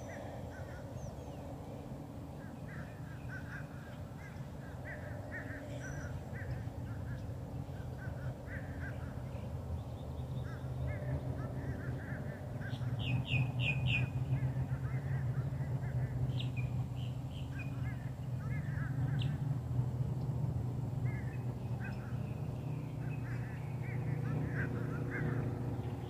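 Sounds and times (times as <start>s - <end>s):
birds chirping: 0.0s - 26.0s
low steady hum: 0.0s - 26.0s
loud high bird calls: 21.0s - 26.0s.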